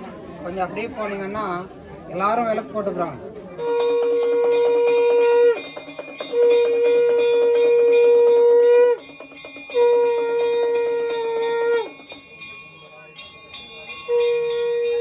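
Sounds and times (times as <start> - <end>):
conch shell blasts: 3.5 - 12.4, 14.0 - 15.0
hand bell ringing rapidly: 3.6 - 15.0.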